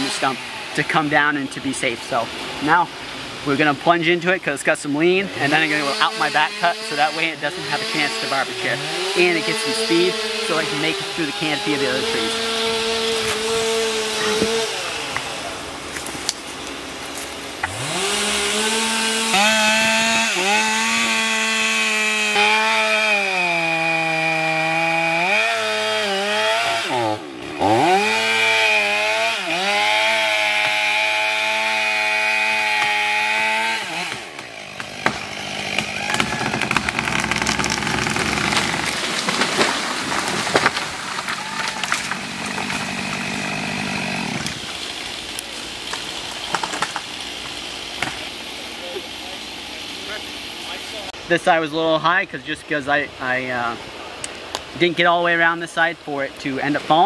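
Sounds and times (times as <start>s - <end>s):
chainsaw cutting wood: 0.0s - 0.8s, 5.3s - 51.1s
tree cracking and falling: 9.0s - 48.4s.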